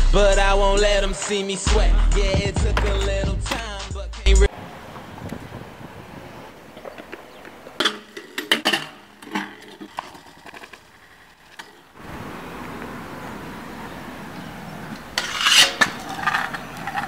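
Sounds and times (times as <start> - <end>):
outdoor background noise: 2.5 - 17.0
scooter crash impacts: 2.7 - 3.8.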